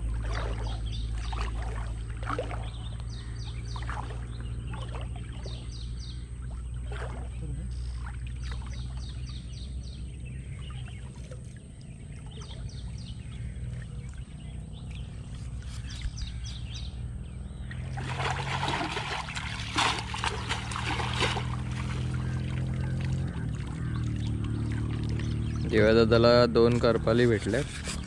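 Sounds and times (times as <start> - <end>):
water splashing and sloshing: 0.0 - 28.0.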